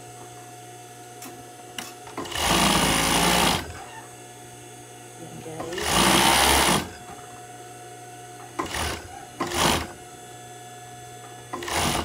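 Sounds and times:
machine low hum: 0.0 - 12.0
overlock machine stitching: 2.2 - 3.8, 5.7 - 6.9, 8.6 - 10.0, 11.6 - 12.0.

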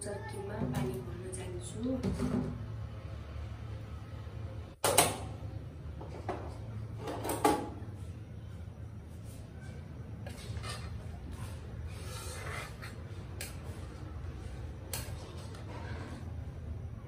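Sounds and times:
kitchen knocks and clatters: 1.9 - 2.6, 6.0 - 7.9, 10.2 - 11.7.

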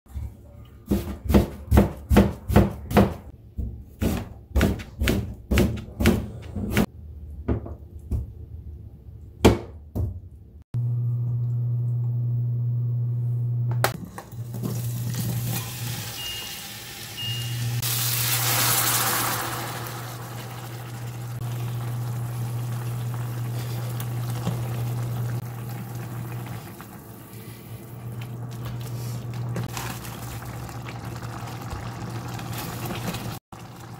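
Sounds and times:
induction cooktop hum: 0.1 - 33.9
knife chopping onions on board: 0.9 - 6.8
oil and onions sizzling: 14.0 - 33.9.

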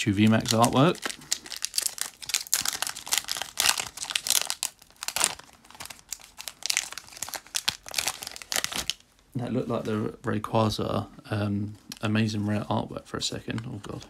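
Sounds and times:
foil wrapper crinkling and tearing: 0.0 - 9.1.

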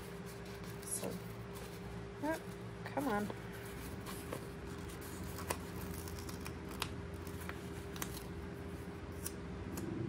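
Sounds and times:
paper rustling: 0.0 - 9.3
stickers peeled crinkling ticks: 4.8 - 8.4.

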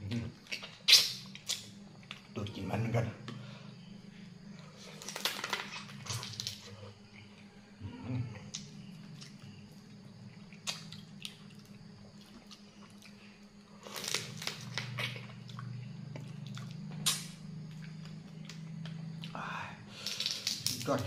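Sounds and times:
steady low hum: 0.0 - 21.0
wet sucking and chewing: 10.2 - 18.6.

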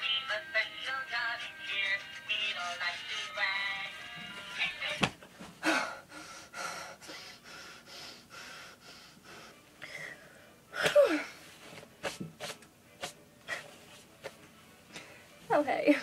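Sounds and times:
woman breathing hard: 5.6 - 11.4.

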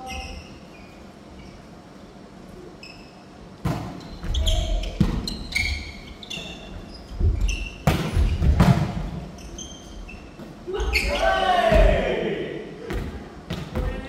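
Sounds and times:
short high squeaks: 0.0 - 1.8, 2.6 - 3.4, 4.0 - 8.5, 9.3 - 11.5.

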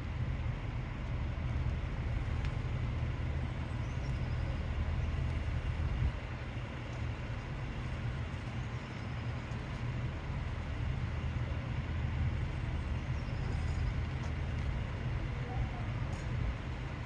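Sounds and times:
diesel railbus idling: 0.0 - 17.0.

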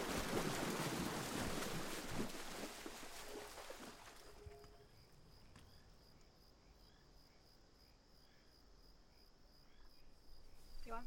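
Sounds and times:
faint crickets chirping: 2.6 - 11.0.

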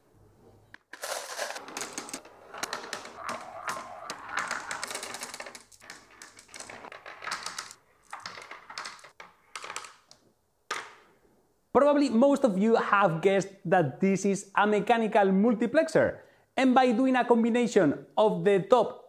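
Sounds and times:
steel marbles clicking on plastic ramps: 0.8 - 10.9.

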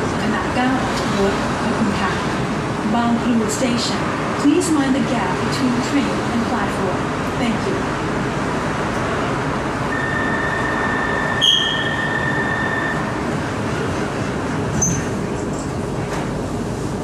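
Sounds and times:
train car hum and rumble: 0.0 - 17.0
high steady tone: 9.9 - 13.1
sharp squeak: 10.0 - 13.0, 14.8 - 15.1.

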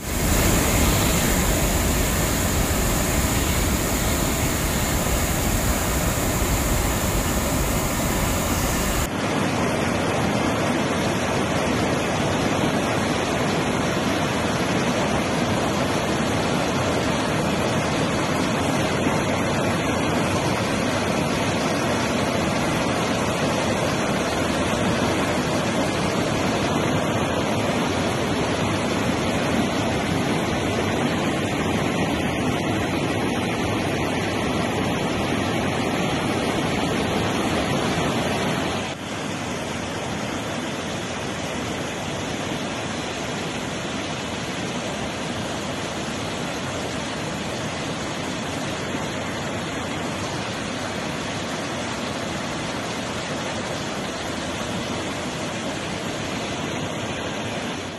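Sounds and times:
waterfall rushing: 0.0 - 9.1.

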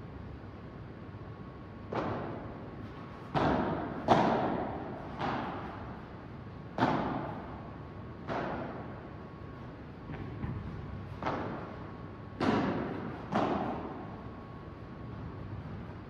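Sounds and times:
padel ball hits echoing: 3.3 - 5.8, 12.4 - 14.2.

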